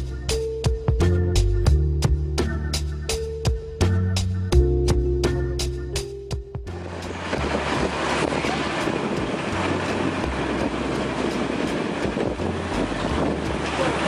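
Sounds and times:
wind rumbling on microphone: 0:06.7 - 0:14.0.

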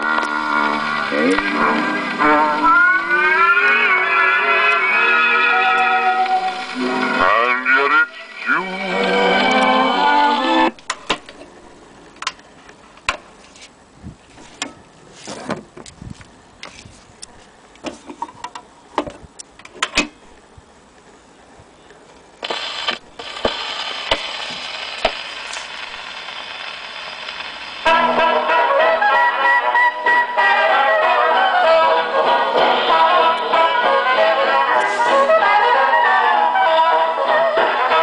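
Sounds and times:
gramophone music: 0:00.0 - 0:12.0, 0:27.4 - 0:38.0
record surface hiss: 0:00.0 - 0:38.0.

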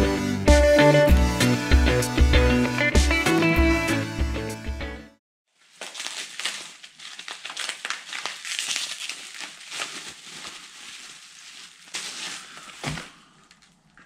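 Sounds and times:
bubble wrap crinkling: 0:05.5 - 0:14.0.

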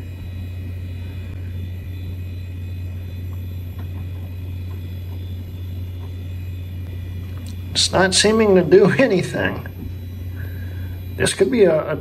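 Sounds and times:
computer fan drone: 0:00.0 - 0:12.0
faint high whine: 0:00.0 - 0:12.0
faint ticks: 0:07.3 - 0:07.6.

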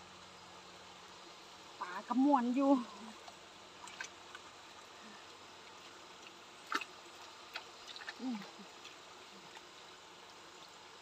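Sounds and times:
background hiss: 0:00.0 - 0:11.0
net dripping water: 0:03.2 - 0:10.5.

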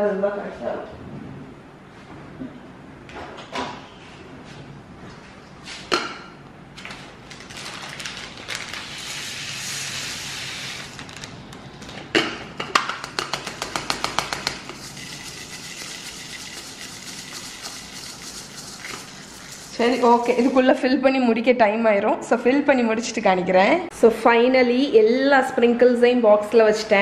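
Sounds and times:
sugar grains pouring through funnel: 0:08.7 - 0:11.0, 0:14.7 - 0:20.6.

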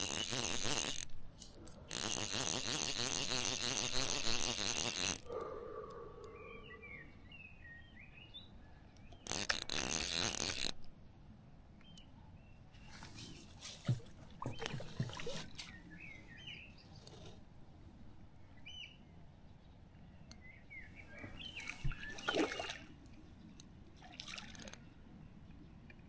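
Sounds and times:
fishing reel ratcheting: 0:00.0 - 0:05.3, 0:09.3 - 0:10.8
birds chirping: 0:05.3 - 0:09.5, 0:11.8 - 0:17.4, 0:18.3 - 0:26.0.

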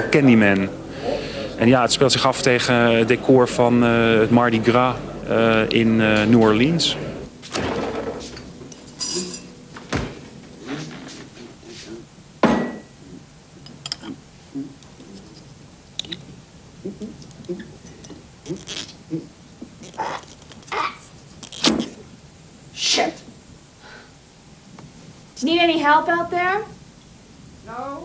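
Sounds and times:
glass bottles and dishes clinking: 0:08.7 - 0:09.5, 0:12.4 - 0:13.0.

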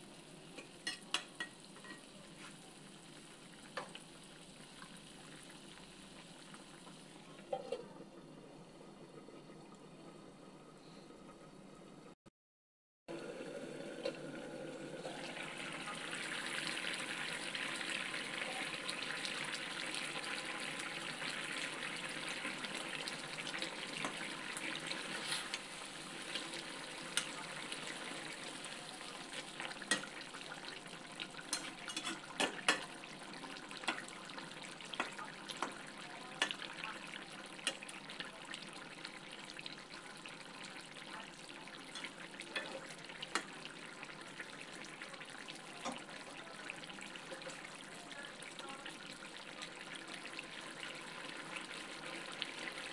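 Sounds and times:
soup bubbling in a pan: 0:00.0 - 0:12.1, 0:13.1 - 0:52.9
spatula scraping a pan: 0:25.1 - 0:25.6.

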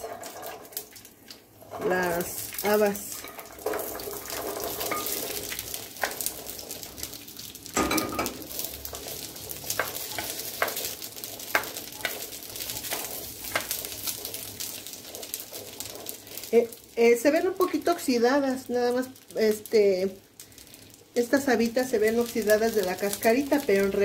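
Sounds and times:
beans sizzling in hot fat: 0:00.0 - 0:24.0.

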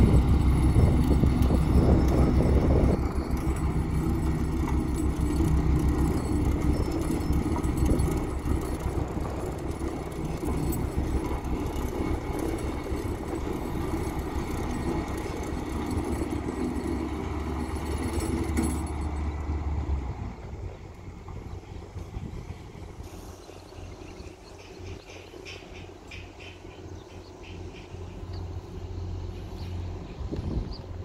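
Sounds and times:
diesel engine rumbling: 0:00.0 - 0:31.0.

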